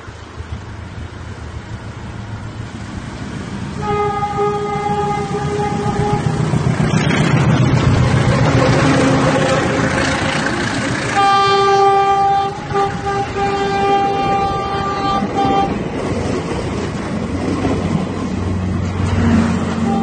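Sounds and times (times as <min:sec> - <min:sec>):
train horn blasts: 0:03.8 - 0:06.6, 0:08.1 - 0:15.8, 0:19.6 - 0:20.0
train wheels clattering on rails: 0:04.7 - 0:20.0.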